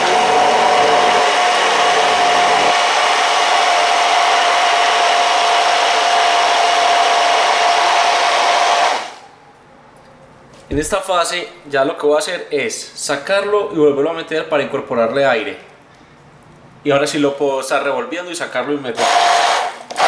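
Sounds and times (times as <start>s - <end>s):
hand blender motor whine: 0.0s - 9.2s, 19.0s - 20.0s.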